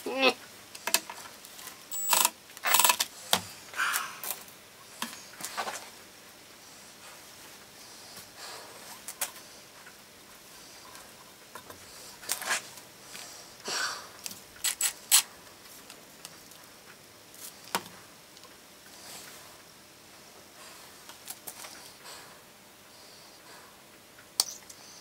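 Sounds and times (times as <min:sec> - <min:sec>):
clicks and knocks of hands working: 0:00.7 - 0:05.8.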